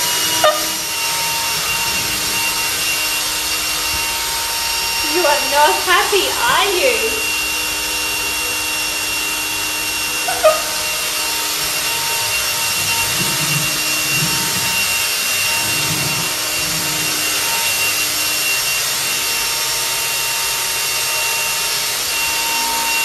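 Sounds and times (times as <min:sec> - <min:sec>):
robot vacuum cleaner whirring: 0:00.0 - 0:23.0.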